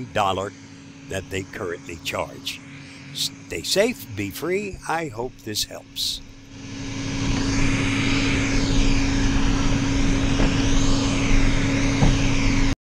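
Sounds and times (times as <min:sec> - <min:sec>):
robot vacuum motor drone: 0:06.4 - 0:12.8.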